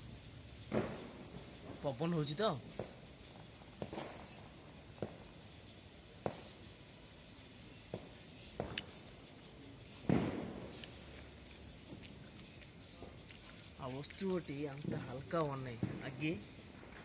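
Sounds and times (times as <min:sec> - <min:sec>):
distant firecracker pops: 0:00.6 - 0:01.9, 0:02.7 - 0:03.1, 0:03.7 - 0:05.4, 0:06.2 - 0:06.6, 0:07.9 - 0:09.1, 0:10.0 - 0:11.3, 0:14.8 - 0:17.0.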